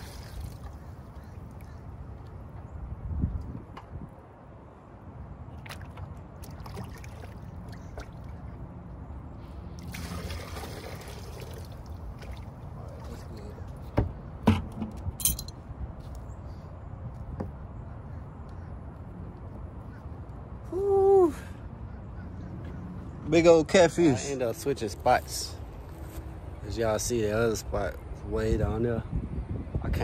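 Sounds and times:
water pouring and splashing: 0.0s - 1.1s, 5.6s - 8.4s, 9.8s - 13.4s.

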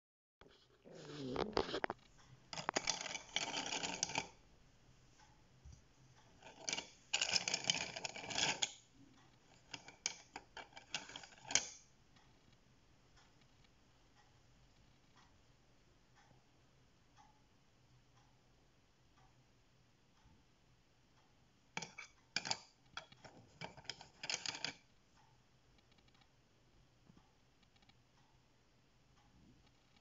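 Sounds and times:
wooden pencils clattering in cup: 1.0s - 4.4s, 6.4s - 8.8s, 9.5s - 11.8s, 21.8s - 24.8s.

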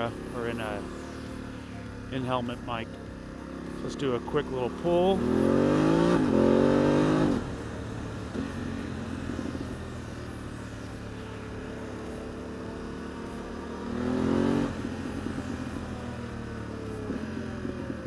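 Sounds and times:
motorcycle engine accelerating: 0.0s - 18.0s.

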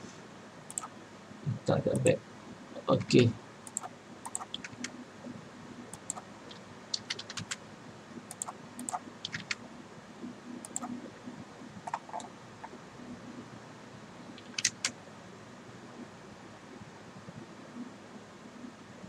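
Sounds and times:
keyboard and mouse clicking: 0.7s - 0.9s, 3.0s - 4.9s, 5.9s - 7.6s, 8.2s - 9.6s, 10.6s - 11.0s, 11.8s - 12.8s, 14.4s - 15.0s.

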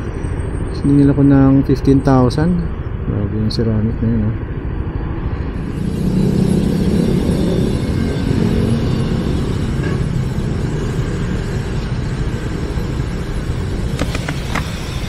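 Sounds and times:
scooter engine rumble: 13.8s - 15.0s.

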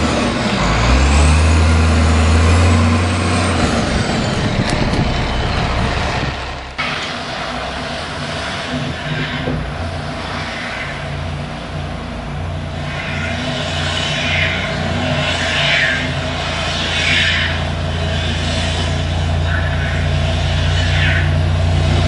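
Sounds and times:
car engine revving in snow: 0.0s - 10.9s
truck diesel engine running: 0.0s - 22.0s.

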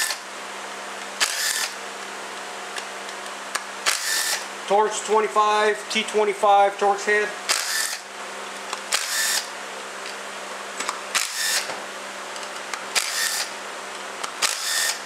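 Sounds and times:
cordless drill whirring: 0.0s - 0.2s, 1.2s - 1.8s, 3.8s - 4.5s, 7.5s - 8.1s, 8.9s - 9.5s, 11.1s - 11.7s, 12.9s - 13.6s, 14.2s - 15.0s.

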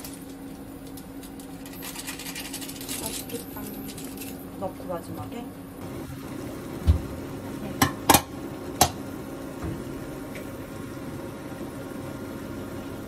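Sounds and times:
steady low hum: 0.0s - 13.0s
utensils clinking against pot: 1.6s - 4.4s.

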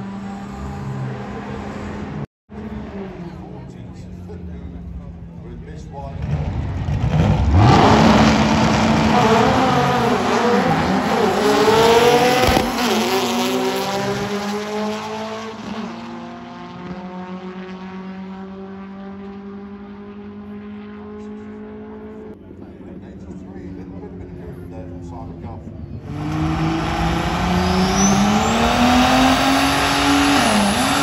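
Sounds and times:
racing car engine revving: 5.9s - 23.1s, 23.8s - 31.0s.

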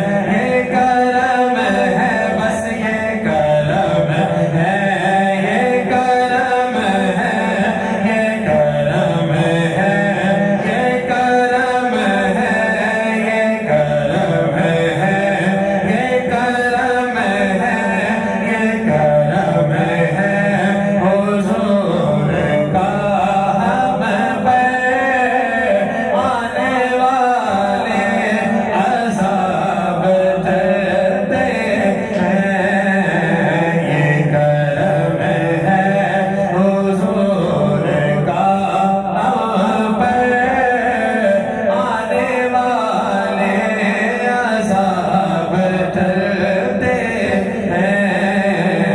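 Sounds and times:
man singing lead melody: 0.0s - 48.9s.

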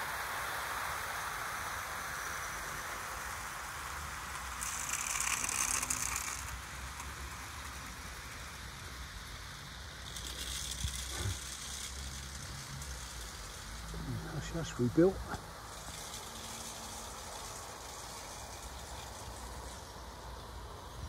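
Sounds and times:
model train wheels rattling: 1.7s - 21.0s
low motor hum: 6.5s - 21.0s.

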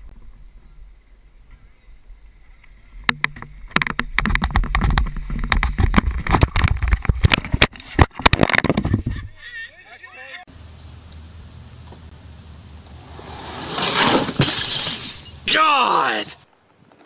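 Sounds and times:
hard knocks and scrapes of crash: 13.0s - 15.4s.

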